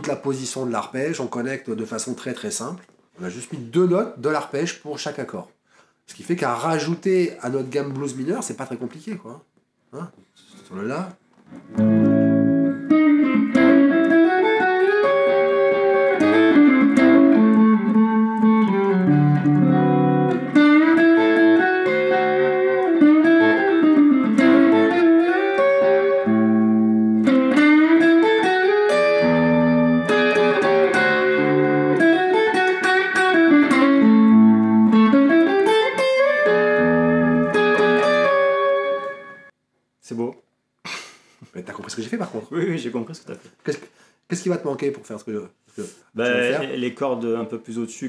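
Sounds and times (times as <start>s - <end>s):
electric guitar with string bends: 11.4s - 39.5s
shuffle blues backing track: 11.6s - 39.5s.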